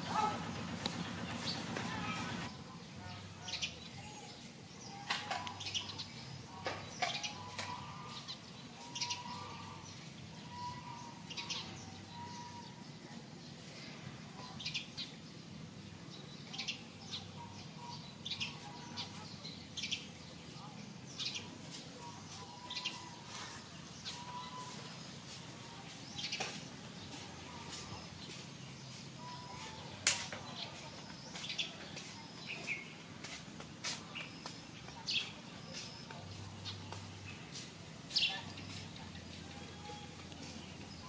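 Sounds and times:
bird chirps: 5.6 - 12.9, 16.5 - 25.0.

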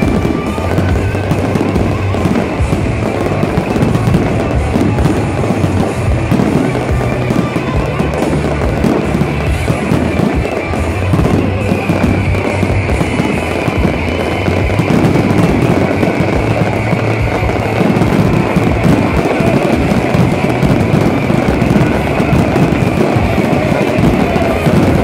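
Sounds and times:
fireworks crackling and banging: 0.0 - 25.0
music playing: 0.0 - 25.0.

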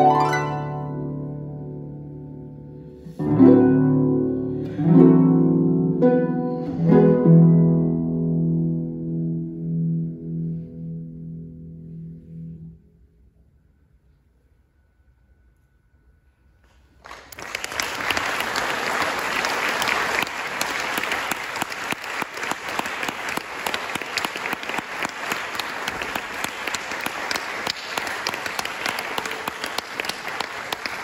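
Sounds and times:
audience applause: 17.0 - 31.0.

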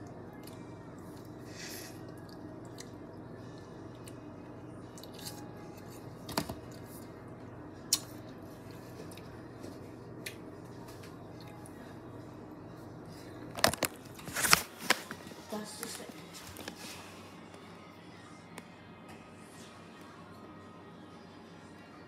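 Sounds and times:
steady low hum: 0.0 - 22.0
person chewing watermelon: 1.9 - 6.1, 7.9 - 11.8.

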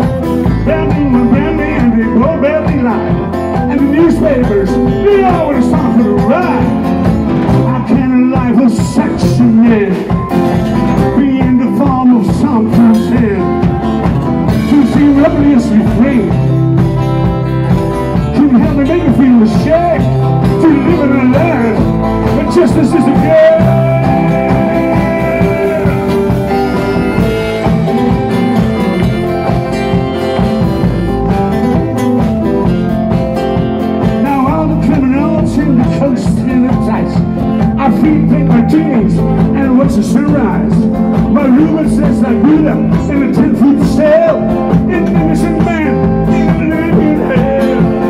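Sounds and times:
bass guitar: 0.0 - 48.0
drums: 0.0 - 48.0
strummed electric guitars: 0.0 - 48.0
harmonica: 19.7 - 33.8.

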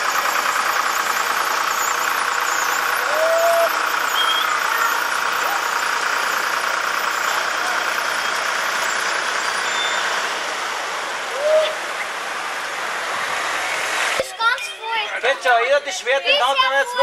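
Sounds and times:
voices: 0.0 - 12.2, 14.0 - 17.0
vehicle engine running: 0.0 - 17.0
rising-and-falling call: 1.9 - 5.4.

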